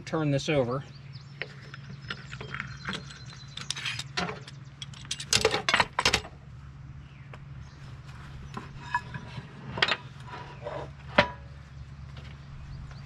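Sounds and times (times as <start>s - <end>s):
steady low hum: 0.0s - 13.0s
metal clamps clanking: 1.4s - 6.3s, 8.6s - 11.5s.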